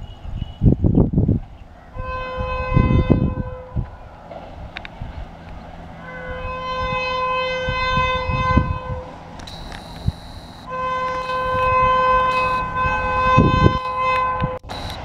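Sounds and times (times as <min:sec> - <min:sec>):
low rumbling: 0:00.0 - 0:15.0
train air horn blowing: 0:01.9 - 0:03.8, 0:06.0 - 0:14.7.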